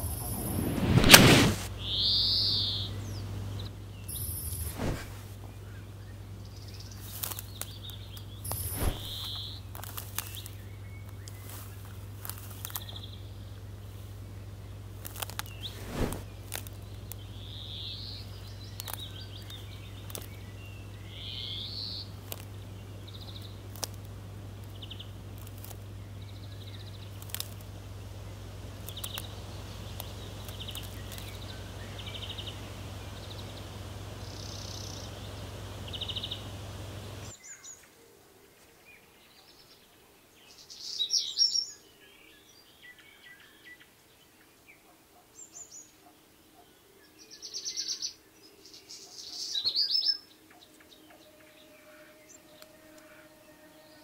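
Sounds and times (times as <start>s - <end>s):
steady low hum: 0.0s - 37.4s, 50.3s - 54.0s
birds chirping: 0.0s - 54.0s
sharp snaps and clicks: 7.0s - 13.1s, 15.0s - 17.3s, 18.3s - 20.6s, 22.1s - 37.3s.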